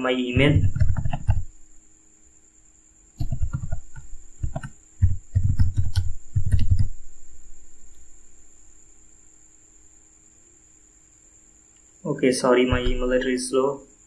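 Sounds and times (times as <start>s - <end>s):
faint high-pitched whine: 0.0s - 14.0s
computer keyboard typing: 0.4s - 1.5s, 3.2s - 7.0s
low hum: 0.4s - 1.8s, 3.2s - 9.5s.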